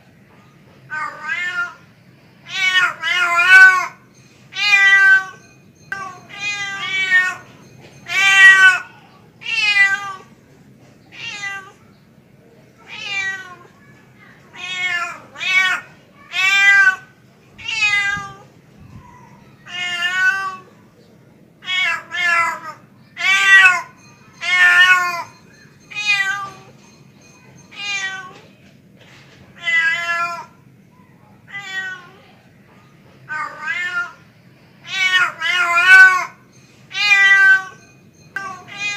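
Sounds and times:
cat meowing: 0.9s - 1.8s, 4.6s - 7.4s, 11.1s - 11.8s, 12.9s - 13.7s, 14.5s - 18.5s, 19.3s - 20.7s, 29.6s - 30.5s, 31.5s - 32.2s, 33.3s - 34.2s, 34.8s - 37.8s.

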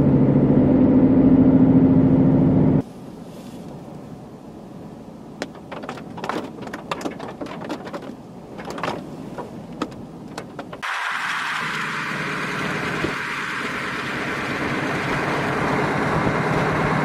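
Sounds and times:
steady rushing background: 5.4s - 12.0s.

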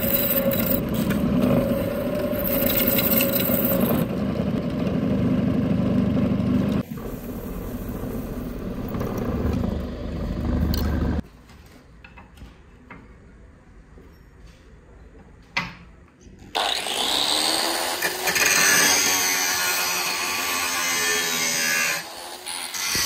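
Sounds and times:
angle grinder grinding steel: 0.0s - 4.2s, 16.6s - 23.0s.

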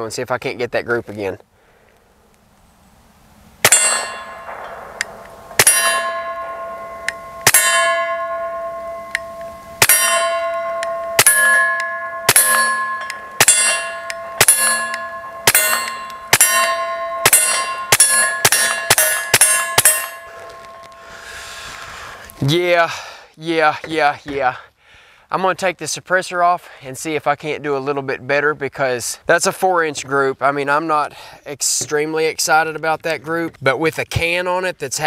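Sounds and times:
suppressed pistol shots: 3.6s - 7.8s
steel target plate ringing: 3.6s - 21.3s.

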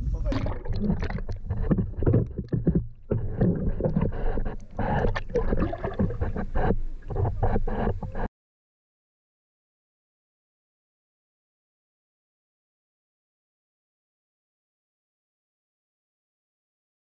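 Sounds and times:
water sloshing and splashing: 0.2s - 6.6s.

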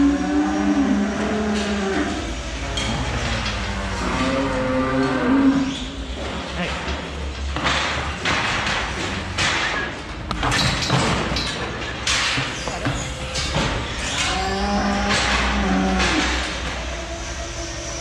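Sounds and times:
cow mooing: 0.0s - 5.9s, 14.2s - 16.6s
metal gates clattering: 0.9s - 18.0s.

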